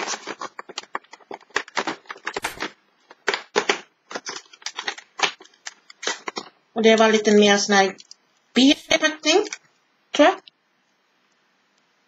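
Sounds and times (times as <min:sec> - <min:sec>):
cardboard tearing and crackling: 0:00.0 - 0:06.5.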